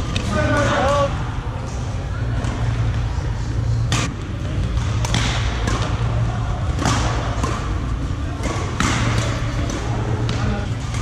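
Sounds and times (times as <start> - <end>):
steady low hum: 0.0 - 11.0
rackets hitting shuttlecock: 3.9 - 11.0.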